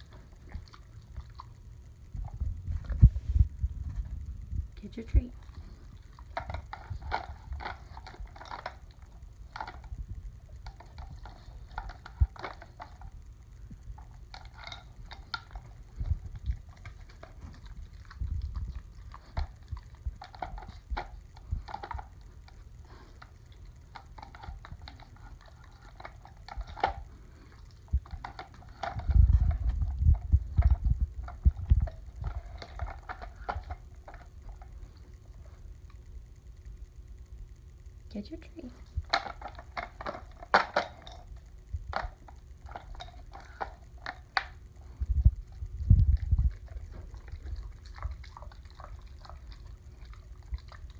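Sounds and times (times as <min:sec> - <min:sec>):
plastic toy cylinders rattling: 0:28.0 - 0:29.7.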